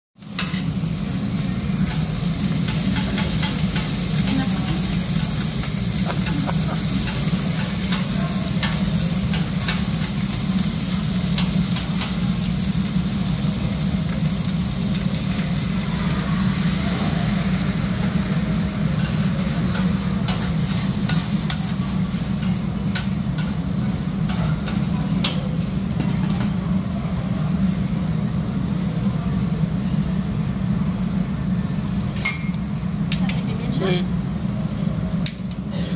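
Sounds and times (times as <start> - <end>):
food sizzling on a griddle: 0.2 - 35.5
metal scrapers on griddle: 1.8 - 12.5.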